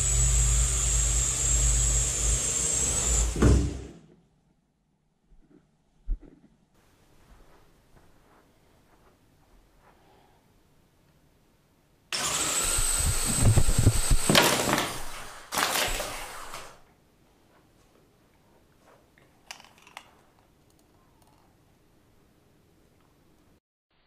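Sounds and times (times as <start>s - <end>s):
small electric motors whining: 0.0s - 3.4s, 12.2s - 16.8s.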